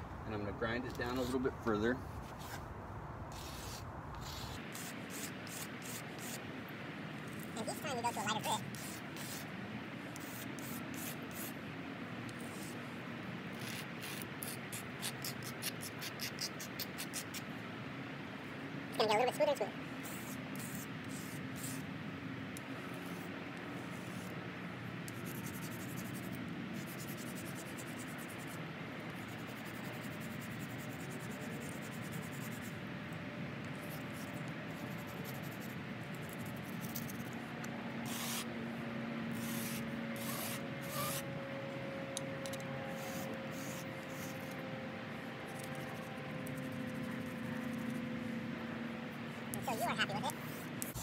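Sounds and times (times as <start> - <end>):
wooden knife scraping on concrete: 2.2 - 2.7.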